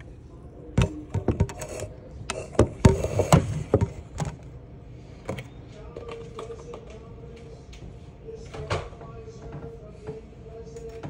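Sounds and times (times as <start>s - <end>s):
plastic cup knocking on counter: 2.6s - 4.3s.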